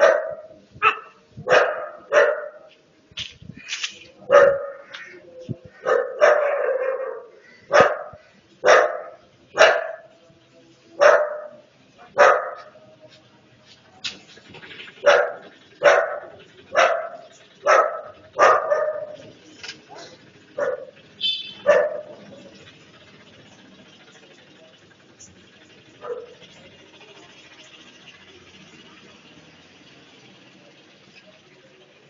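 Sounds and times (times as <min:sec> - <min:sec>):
dog barking: 0:00.0 - 0:02.7, 0:04.3 - 0:04.9, 0:05.8 - 0:10.1, 0:11.0 - 0:12.8, 0:15.0 - 0:19.3, 0:19.9 - 0:22.4, 0:26.0 - 0:26.4.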